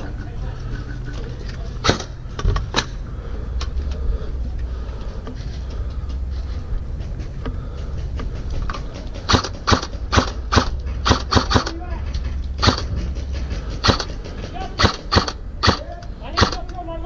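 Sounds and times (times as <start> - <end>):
low wind rumble on microphone: 0.0 - 17.0
sharp clicks: 7.4 - 16.8.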